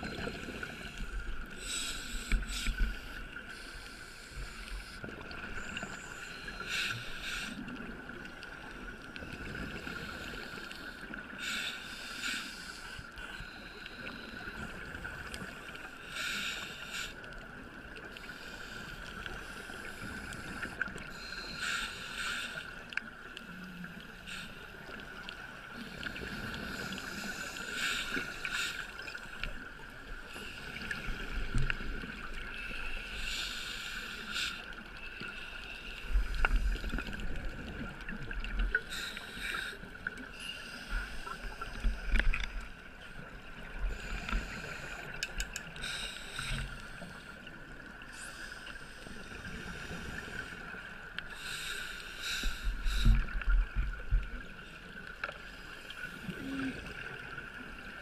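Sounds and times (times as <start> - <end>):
diver breathing through regulator: 0.0 - 7.6, 9.8 - 14.8, 16.0 - 17.2, 18.2 - 22.8, 25.8 - 29.5, 32.6 - 37.1, 38.8 - 42.6, 43.8 - 47.5, 48.1 - 53.4.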